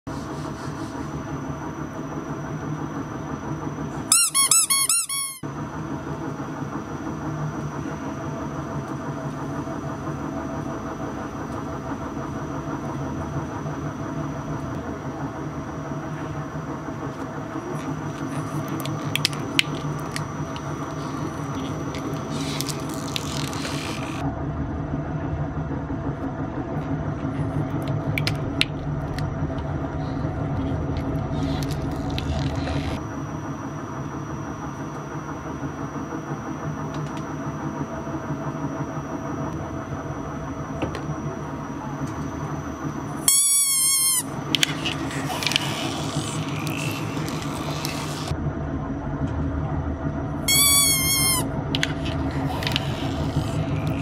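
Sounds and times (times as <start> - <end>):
rubber toy squeaking: 4.1 - 5.4, 21.0 - 24.2, 43.3 - 48.0, 50.5 - 54.0
industrial shredder humming: 5.1 - 43.3, 43.9 - 50.5, 51.2 - 54.0.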